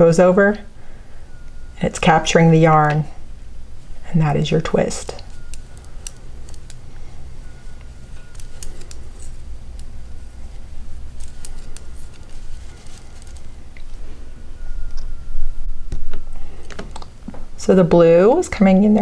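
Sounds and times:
knitting needles clicking: 5.1s - 6.9s, 7.8s - 9.9s.

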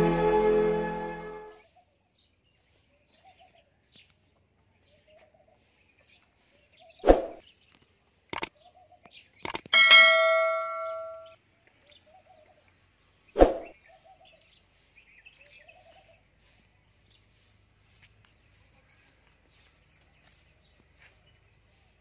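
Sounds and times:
intro music: 0.0s - 1.5s
clicks: 9.4s - 11.2s
ringing metallic clang: 9.7s - 11.3s.

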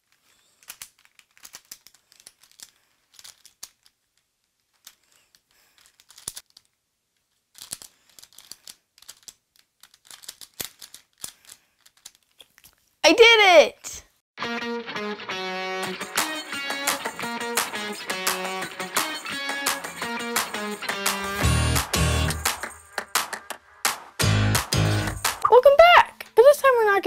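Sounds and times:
puzzle clicking as it is twisted: 0.0s - 12.8s.

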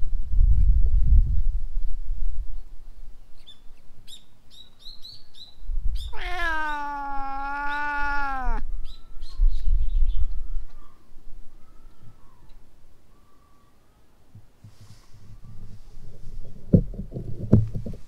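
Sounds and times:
cat meowing: 6.1s - 8.6s.

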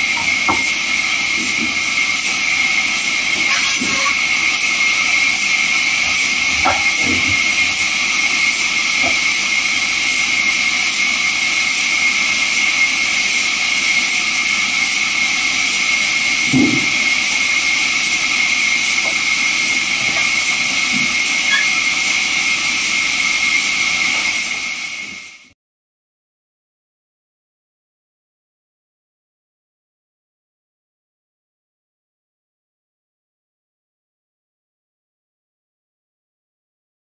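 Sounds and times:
bandsaw blade whining through wood: 0.0s - 24.6s.

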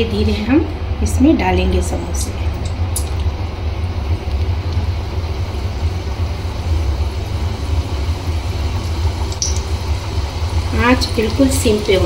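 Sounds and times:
food sizzling in hot oil: 3.0s - 12.0s.

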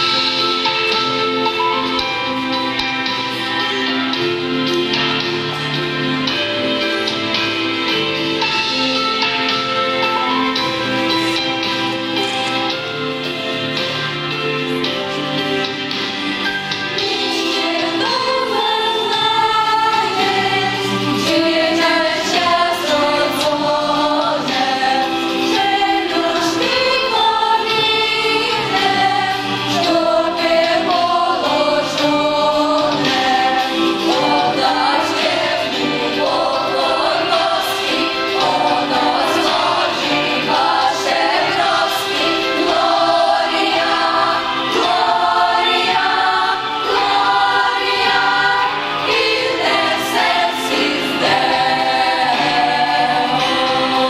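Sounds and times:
choir singing a carol: 0.0s - 54.0s.

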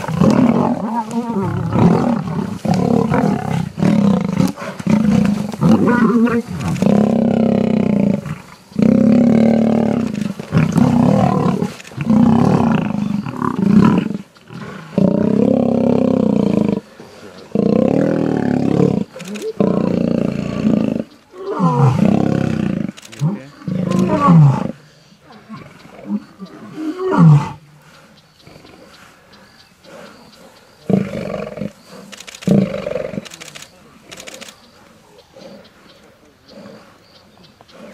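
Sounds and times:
lions roaring: 0.0s - 27.6s.

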